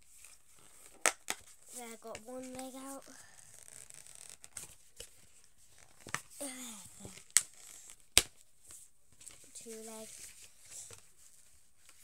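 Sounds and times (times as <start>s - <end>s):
cardboard and plastic rustling: 4.3s - 12.0s.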